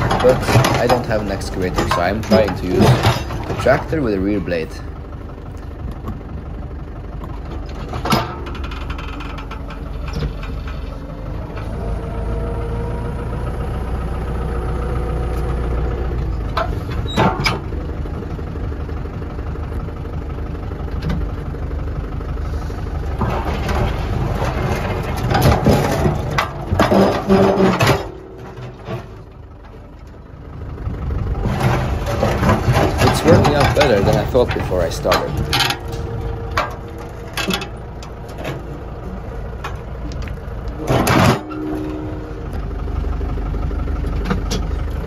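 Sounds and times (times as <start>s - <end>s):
blade clattering and scraping stones: 0.0s - 4.8s, 23.2s - 29.3s, 31.4s - 38.6s
tractor diesel engine under load: 0.0s - 45.0s.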